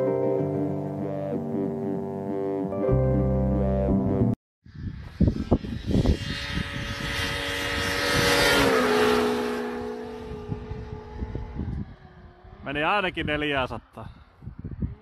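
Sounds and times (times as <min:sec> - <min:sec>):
snowmobile engine running: 0:05.5 - 0:13.9.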